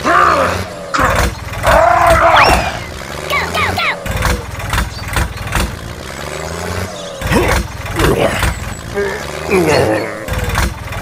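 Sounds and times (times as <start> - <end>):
tractor engine running: 0.0 - 11.0
gliding voice-like sounds: 2.3 - 4.3.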